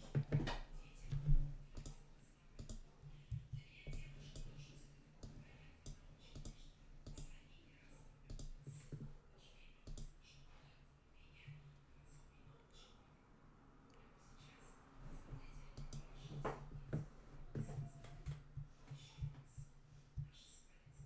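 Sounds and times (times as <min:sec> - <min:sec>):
faint low hum: 0:00.0 - 0:21.0
computer mouse clicking: 0:00.2 - 0:02.0, 0:02.6 - 0:04.6, 0:05.2 - 0:07.4, 0:08.2 - 0:09.0, 0:09.8 - 0:10.2, 0:15.7 - 0:19.7.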